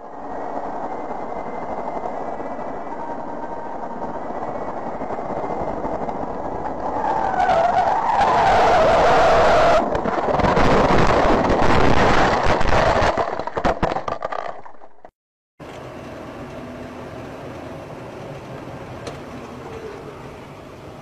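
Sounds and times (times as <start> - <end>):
knocks and crackles rattling: 9.8 - 15.1
car road and engine noise: 14.4 - 21.0.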